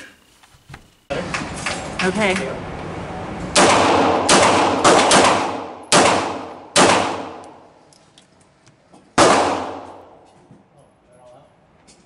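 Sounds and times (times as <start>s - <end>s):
pistol shots echoing indoors: 3.5s - 7.7s, 9.2s - 10.3s.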